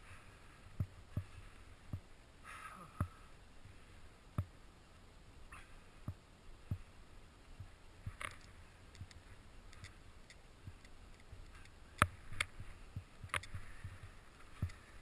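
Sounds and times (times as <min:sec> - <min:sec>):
soft low thumps: 0:00.7 - 0:02.2, 0:06.0 - 0:08.2, 0:12.0 - 0:15.0
sharp clicks: 0:08.2 - 0:12.6, 0:13.2 - 0:13.6.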